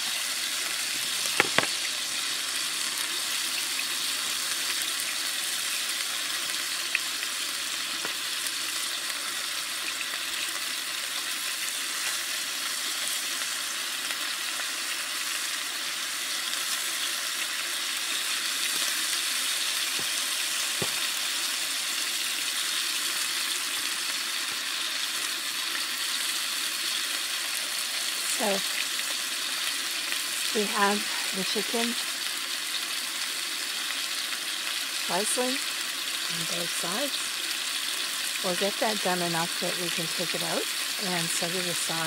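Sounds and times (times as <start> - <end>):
meat sizzling in a skillet: 0.0 - 42.0
small pops: 1.2 - 1.8.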